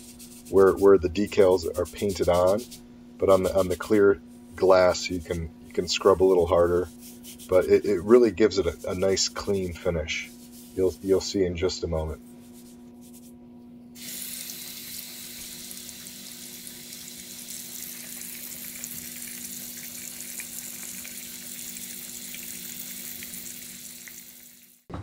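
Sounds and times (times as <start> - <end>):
faucet water running into sink: 14.0 - 24.9.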